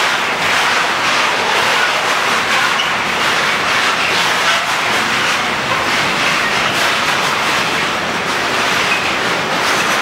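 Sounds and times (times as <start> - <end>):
freight wagons rolling on rails: 0.0 - 10.0.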